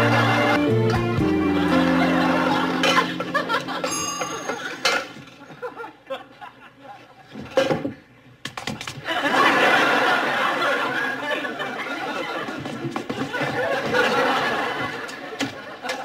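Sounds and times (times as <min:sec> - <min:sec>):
studio audience laughter: 0:00.0 - 0:00.6, 0:01.4 - 0:07.3, 0:09.0 - 0:16.0
kitchen pots and utensils clinking: 0:02.8 - 0:05.6, 0:07.3 - 0:07.9.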